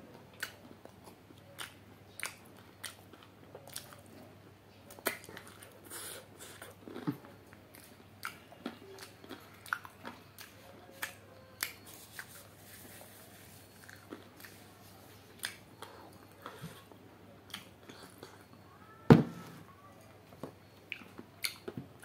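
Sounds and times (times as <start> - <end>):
faint low hum: 0.0 - 22.0
person chewing food: 0.1 - 4.3, 4.9 - 18.6, 20.6 - 22.0.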